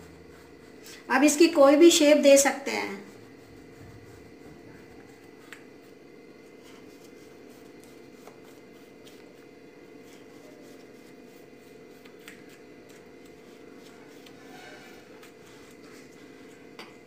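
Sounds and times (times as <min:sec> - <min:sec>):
knife scraping through sweet: 0:06.6 - 0:16.7.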